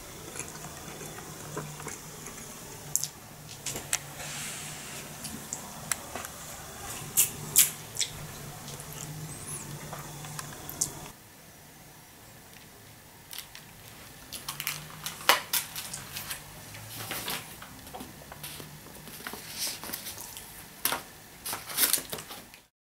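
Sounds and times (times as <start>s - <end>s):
paper crackling and rustling: 13.4s - 22.6s.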